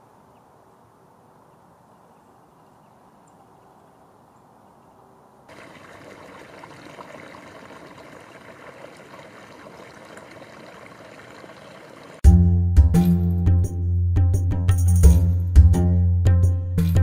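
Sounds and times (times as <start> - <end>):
flowing river water: 5.5 - 12.2.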